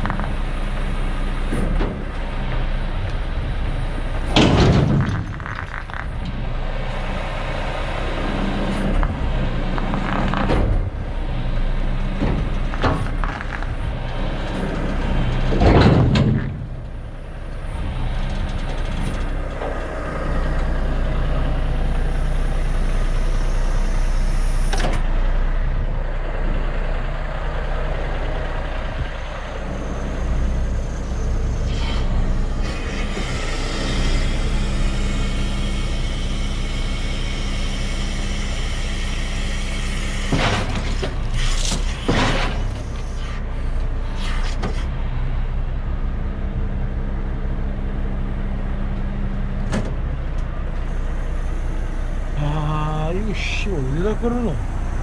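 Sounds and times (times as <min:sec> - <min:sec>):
diesel truck engine running: 0:00.0 - 0:55.0
clanks and knocks: 0:04.2 - 0:06.4, 0:12.1 - 0:17.0, 0:40.3 - 0:43.1.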